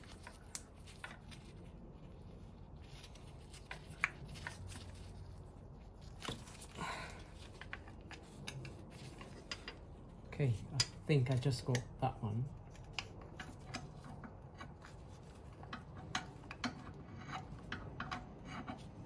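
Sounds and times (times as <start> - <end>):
hand tool clicking and scraping: 6.1 - 12.0, 12.6 - 19.0.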